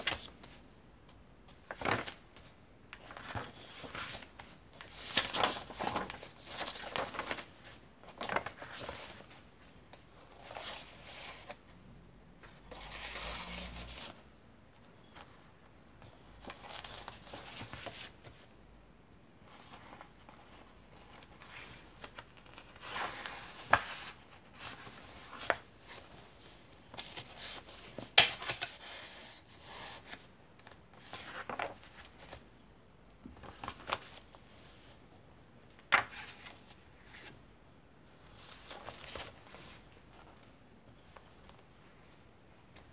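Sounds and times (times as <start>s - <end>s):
paper pages rustling: 1.6s - 11.6s, 19.6s - 32.4s, 33.4s - 35.0s, 38.3s - 41.6s.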